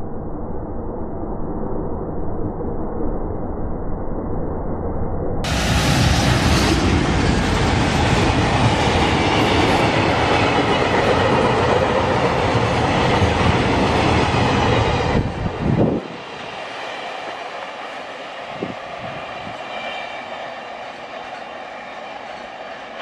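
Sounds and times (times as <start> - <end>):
freight train wheels rumbling on rails: 5.5 - 23.0.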